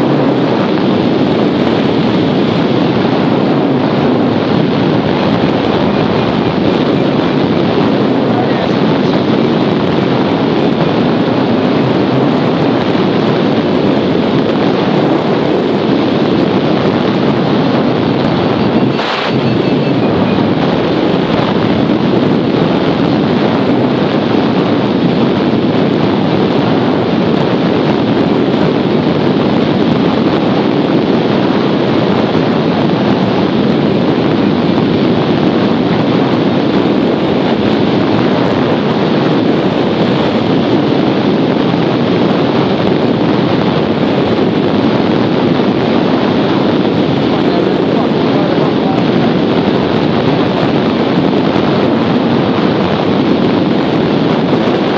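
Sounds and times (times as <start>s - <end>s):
airflow buffeting microphone: 0.0s - 54.9s.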